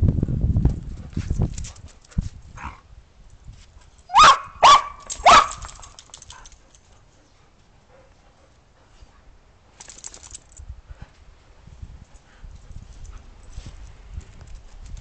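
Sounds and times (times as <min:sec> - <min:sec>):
dog barking: 0:04.1 - 0:05.6.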